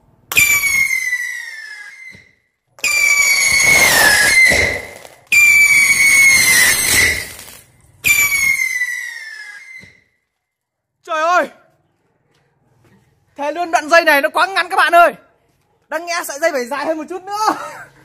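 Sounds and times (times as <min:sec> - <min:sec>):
whistling firecrackers: 0:00.3 - 0:10.2.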